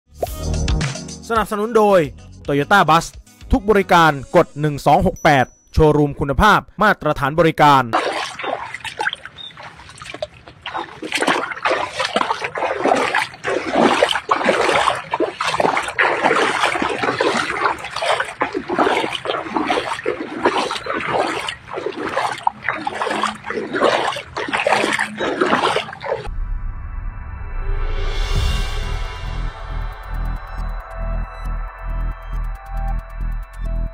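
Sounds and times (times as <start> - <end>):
floodwater splashing and sloshing: 7.9 - 26.3
electronic music: 29.0 - 33.9.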